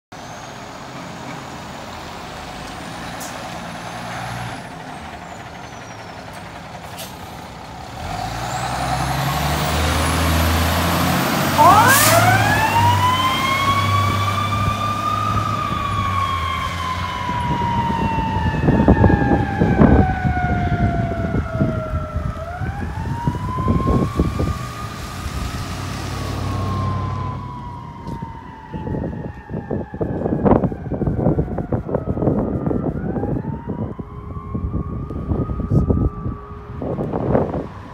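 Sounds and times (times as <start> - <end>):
diesel engine revving: 0.2 - 29.6
siren wailing: 10.2 - 37.9.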